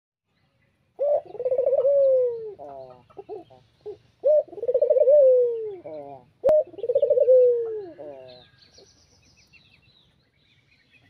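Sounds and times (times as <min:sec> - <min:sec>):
dove cooing: 0:01.0 - 0:08.6.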